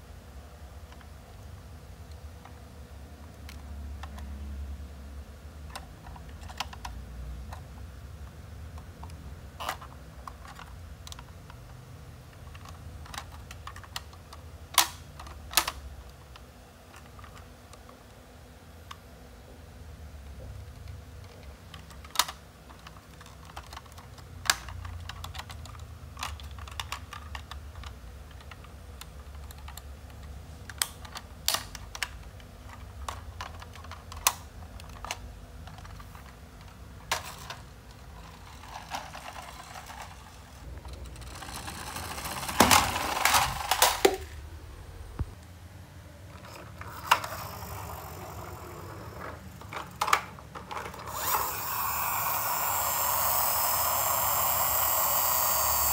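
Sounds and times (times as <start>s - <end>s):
plastic toy parts clicking: 5.7s - 7.7s, 12.3s - 18.0s, 20.7s - 44.3s, 49.2s - 55.9s
plastic rattling and scraping: 49.2s - 51.2s.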